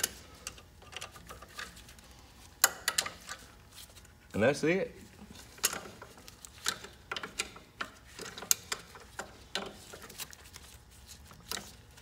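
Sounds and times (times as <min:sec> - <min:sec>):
metal parts clicking and clinking: 0:00.0 - 0:01.8, 0:02.6 - 0:03.5.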